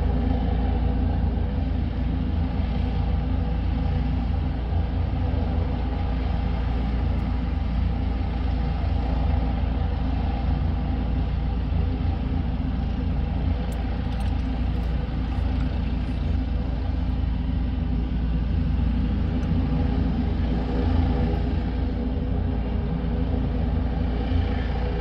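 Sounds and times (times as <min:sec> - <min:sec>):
helicopter engine running: 0:00.0 - 0:25.0.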